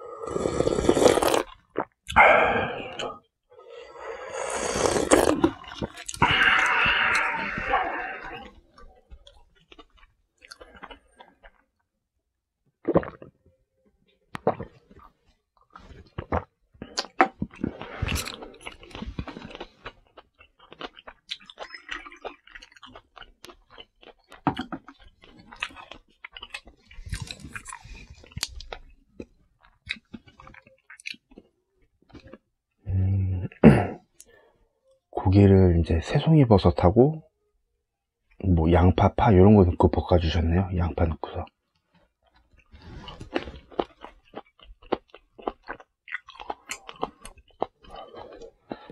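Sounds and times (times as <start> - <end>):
chewing and biting: 14.4 - 31.5, 41.9 - 48.9.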